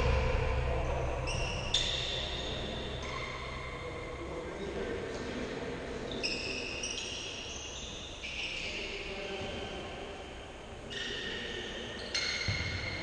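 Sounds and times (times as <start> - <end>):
low hum: 0.0 - 5.0
shoes squeaking on hall floor: 6.0 - 9.8, 10.8 - 13.0.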